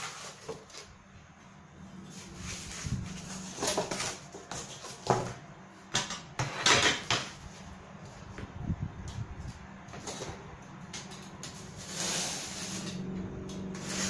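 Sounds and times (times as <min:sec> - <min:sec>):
cardboard scraping and rustling: 0:00.0 - 0:01.0, 0:02.0 - 0:05.4.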